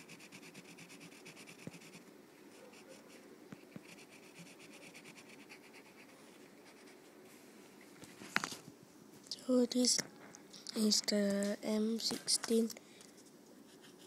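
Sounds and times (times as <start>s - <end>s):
pencil scratching on paper: 0.0s - 2.0s, 2.6s - 7.0s, 13.6s - 14.0s.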